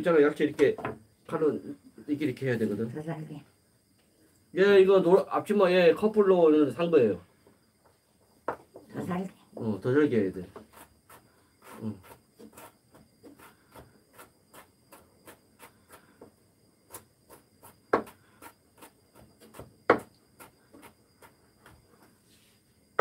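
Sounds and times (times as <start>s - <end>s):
knife chopping on wooden board: 16.9s - 18.2s, 18.8s - 21.3s.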